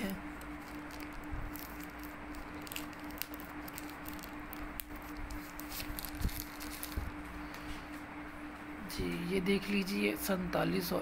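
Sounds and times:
faint steady hum: 0:00.0 - 0:11.0
plastic wrapper crinkling: 0:00.2 - 0:07.3.

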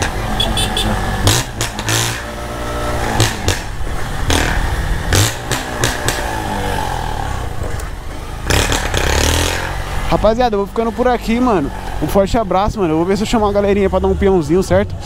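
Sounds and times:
motorcycle engine revving: 0:00.0 - 0:14.6.

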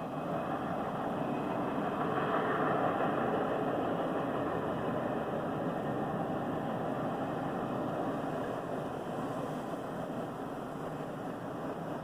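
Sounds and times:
diesel locomotives rumbling: 0:00.0 - 0:12.0.

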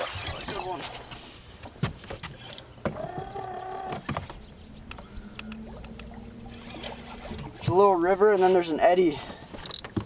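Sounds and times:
fishing reel whirring: 0:05.0 - 0:07.6.

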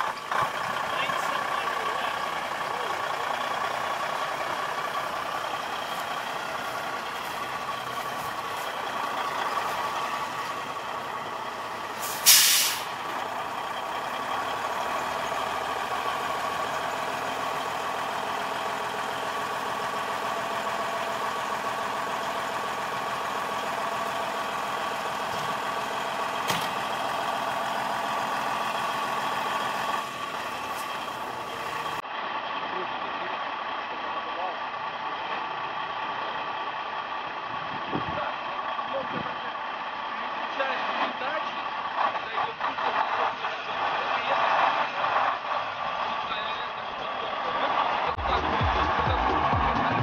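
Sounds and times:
diesel truck engine idling: 0:00.0 - 0:50.0
air brake hiss: 0:12.0 - 0:13.0.

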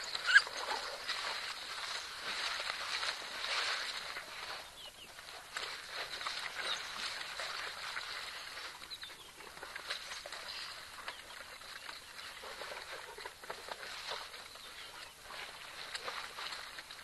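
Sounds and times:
wild dogs chirping: 0:00.0 - 0:01.4.

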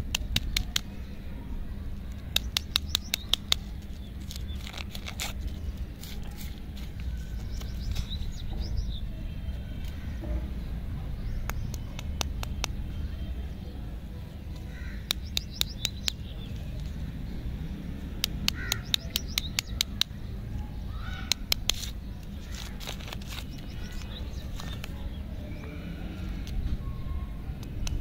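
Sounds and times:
birds chirping: 0:00.0 - 0:28.0
low steady rumble: 0:00.0 - 0:28.0
wrappers crinkling: 0:03.8 - 0:08.2, 0:21.8 - 0:24.9.

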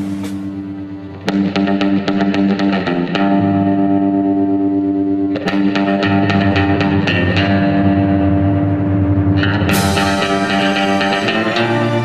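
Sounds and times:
bass: 0:00.0 - 0:12.0
distorted electric guitar riff: 0:00.0 - 0:12.0.

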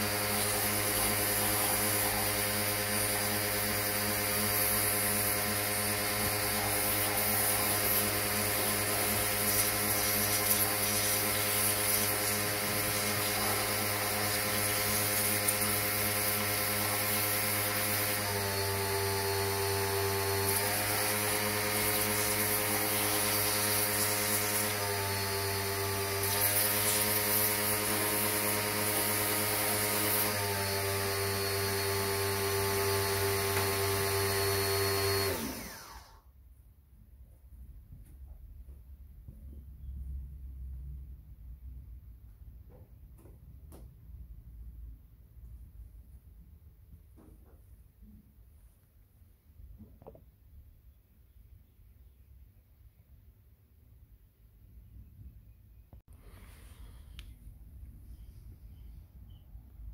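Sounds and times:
pressure washer jet hissing: 0:00.0 - 0:36.1.

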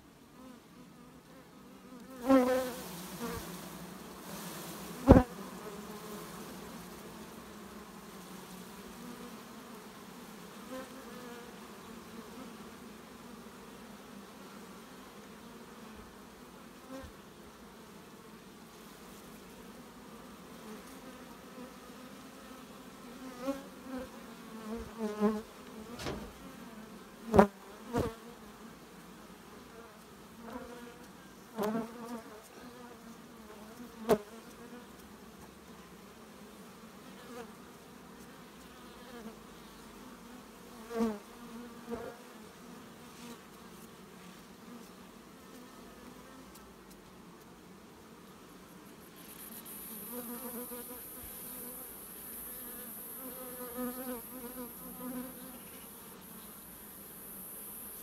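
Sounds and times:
honeybees buzzing: 0:00.2 - 0:58.0
sharp knocks: 0:26.0 - 0:26.3.

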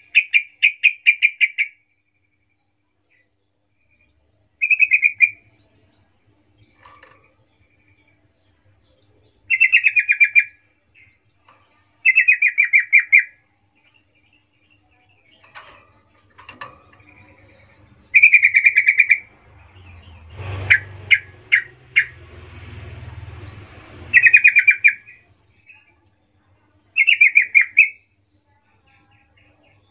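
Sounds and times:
bird chirps: 0:00.0 - 0:26.0, 0:26.9 - 0:28.2
low background rumble: 0:13.5 - 0:25.8
bulbul calling: 0:16.4 - 0:22.2, 0:24.1 - 0:25.8.

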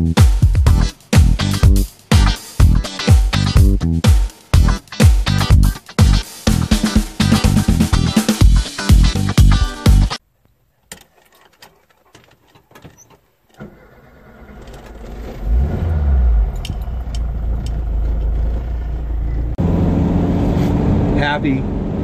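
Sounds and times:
guitar music: 0:00.0 - 0:10.2
keys clicking: 0:10.8 - 0:13.6
engine cranking and running: 0:10.9 - 0:19.6.

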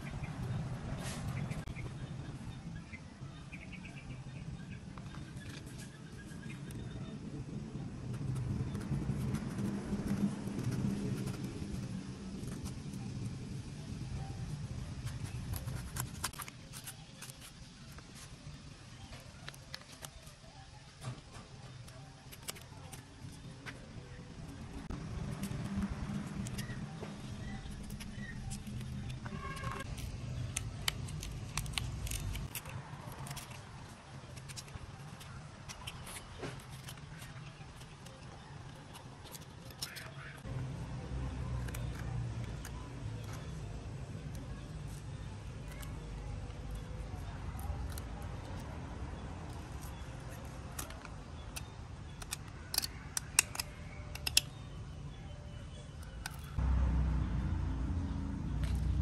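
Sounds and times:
low steady rumble: 0:00.0 - 0:16.4, 0:56.2 - 0:59.0
knife cutting fruit rind: 0:08.2 - 0:13.1, 0:15.0 - 0:18.4, 0:24.9 - 0:54.7
knife scraping fruit: 0:15.0 - 0:18.4, 0:25.1 - 0:40.2.

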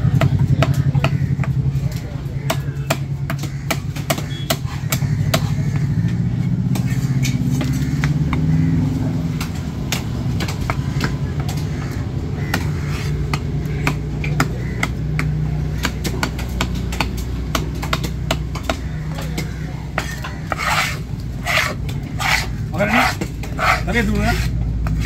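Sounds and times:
low engine hum: 0:00.0 - 0:25.0
knife chopping fish on wooden block: 0:02.4 - 0:05.9, 0:09.3 - 0:25.0.

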